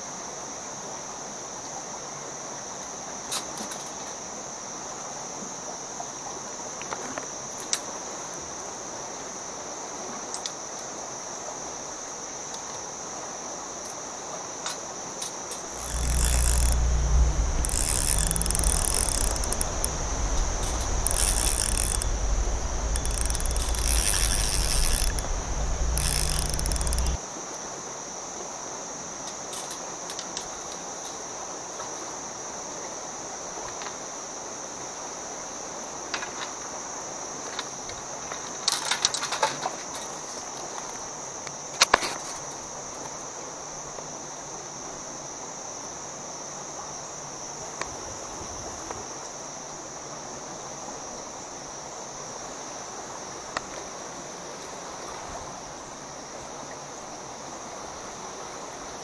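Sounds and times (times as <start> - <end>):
faint clicks: 15.6 - 27.2
bursts of high hiss: 15.7 - 27.2
high-pitched insect drone: 15.7 - 27.2
loud low rumble: 15.7 - 27.2.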